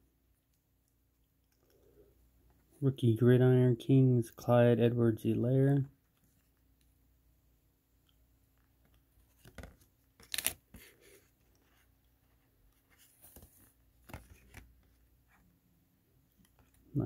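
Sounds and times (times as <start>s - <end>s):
cardboard cards scraping and flicking: 9.2s - 11.9s, 12.8s - 14.9s.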